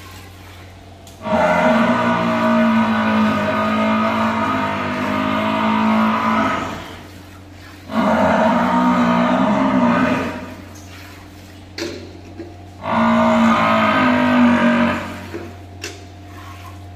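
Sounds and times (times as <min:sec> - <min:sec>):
water buffalo lowing: 0:00.1 - 0:11.4, 0:12.7 - 0:16.9.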